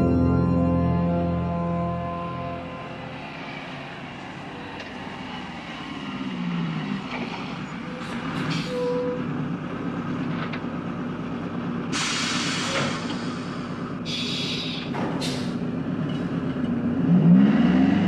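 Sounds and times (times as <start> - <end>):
heavy vehicle engine rumbling: 0.0 - 18.0
loud burst of hiss: 11.9 - 15.6.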